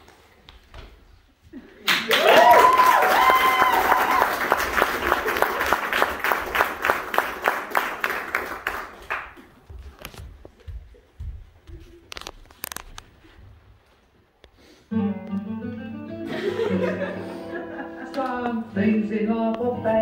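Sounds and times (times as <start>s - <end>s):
audience applauding: 1.8s - 9.6s
voices whooping: 2.1s - 4.6s.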